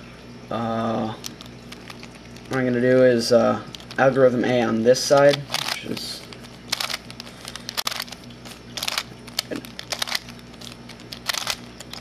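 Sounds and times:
plastic puzzle clicking: 5.1s - 8.2s, 8.8s - 12.0s.

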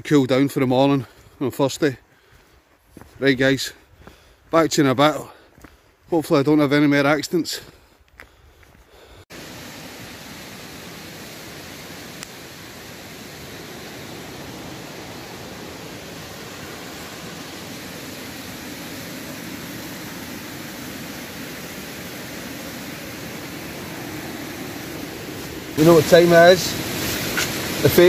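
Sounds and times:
waterfall rushing: 9.3s - 28.0s
faint click: 12.2s - 12.4s.

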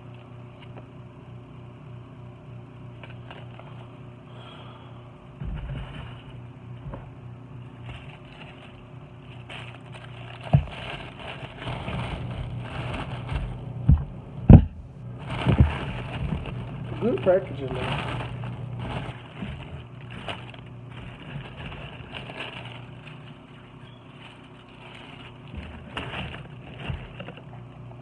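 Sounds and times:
steady low hum: 0.0s - 28.0s
paper and packaging rustling: 3.0s - 3.9s, 5.5s - 6.4s, 7.7s - 13.7s, 15.1s - 27.7s.

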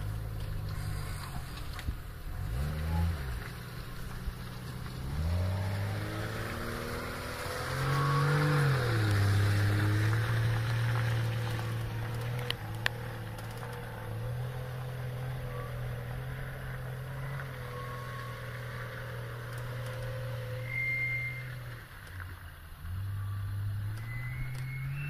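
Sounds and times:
vehicle engine running: 0.0s - 25.0s
short high whistle: 20.5s - 21.6s, 23.9s - 25.0s.

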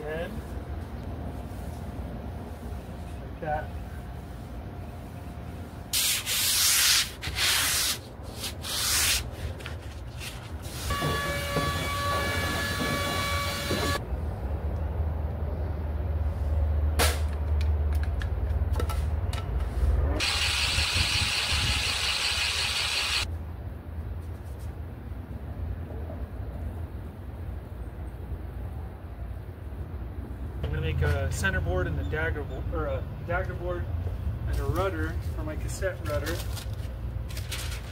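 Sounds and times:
steady squeal: 10.9s - 14.0s.

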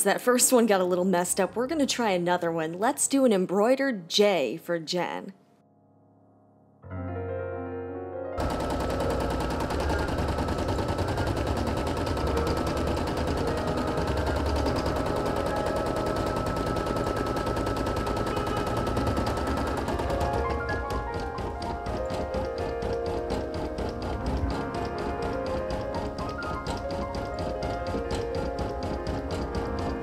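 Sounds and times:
embroidery machine needle strokes: 8.4s - 30.0s
soft machine hum: 8.4s - 30.0s.

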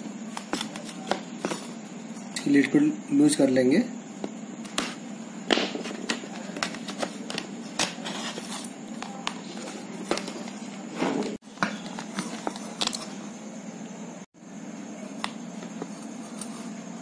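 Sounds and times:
steady low hum: 0.0s - 17.0s
scraping handling noise: 5.8s - 13.2s.

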